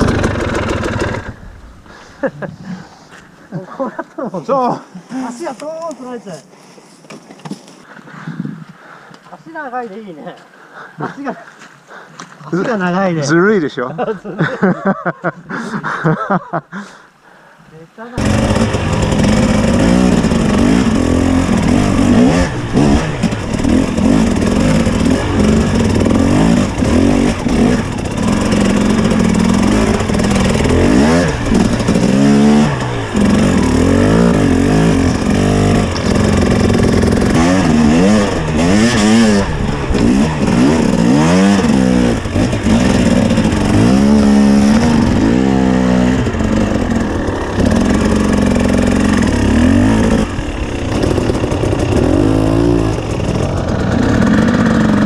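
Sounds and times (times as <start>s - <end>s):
motorcycle engine revving: 0.0s - 2.0s, 18.2s - 55.0s.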